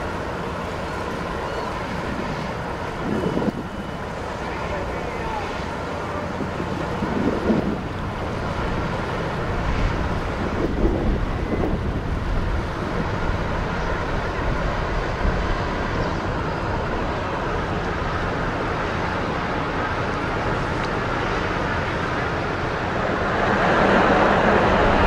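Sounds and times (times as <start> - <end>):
boat engines droning: 0.0 - 25.0
wind noise on microphone: 2.0 - 3.9, 6.2 - 18.8.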